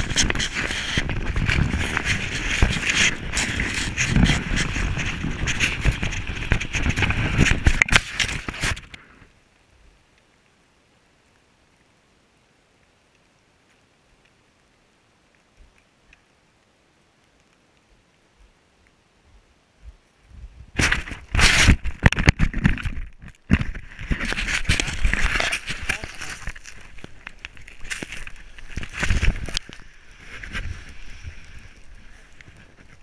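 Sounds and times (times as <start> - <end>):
snow rubbing against camera: 0.0 - 8.9, 20.3 - 33.0
sled scraping over snow: 0.0 - 9.0, 20.6 - 33.0.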